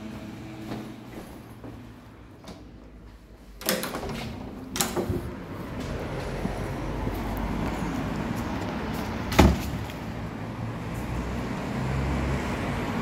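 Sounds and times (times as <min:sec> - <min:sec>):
street traffic rumble: 0:00.0 - 0:13.0
heavy wooden door shutting: 0:03.6 - 0:06.0.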